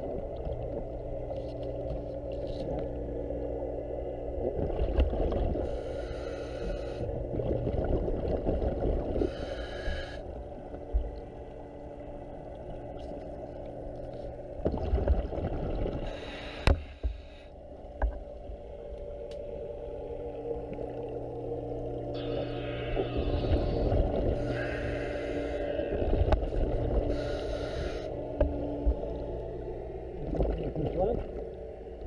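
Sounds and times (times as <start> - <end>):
exhaled bubbles gurgling: 0.0 - 17.4, 18.3 - 32.0
steady low hum: 0.0 - 32.0
diver breathing through regulator: 5.6 - 7.1, 9.2 - 10.3, 16.0 - 17.6, 22.2 - 26.0, 27.0 - 28.2.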